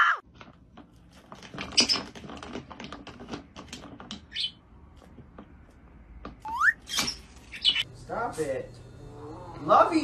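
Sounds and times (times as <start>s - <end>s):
claws and beak tapping plastic: 0.3s - 7.1s.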